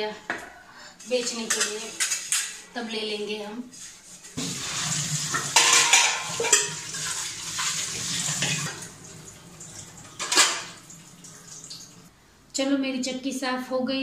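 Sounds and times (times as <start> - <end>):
metal bowls clanking in sink: 1.0 - 2.7, 4.2 - 11.0
tap water running: 3.8 - 12.1.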